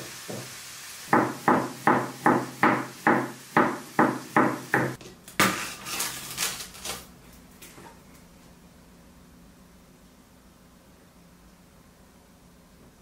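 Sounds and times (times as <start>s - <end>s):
knife chopping on wooden board: 1.1s - 5.5s.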